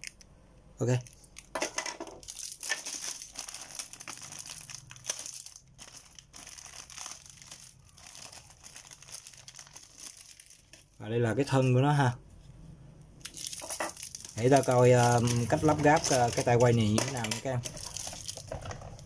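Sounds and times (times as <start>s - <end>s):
plastic bag crinkling: 0.9s - 11.0s, 13.2s - 19.0s.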